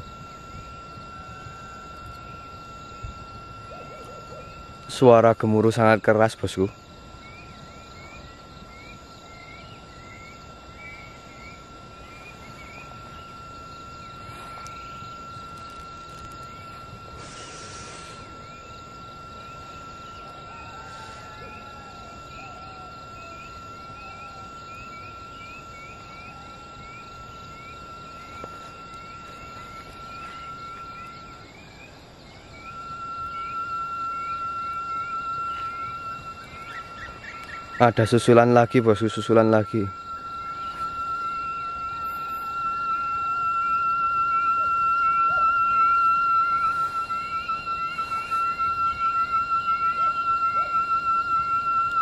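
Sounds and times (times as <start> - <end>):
frogs calling: 0.0 - 52.0
high-pitched insect whine: 0.0 - 52.0.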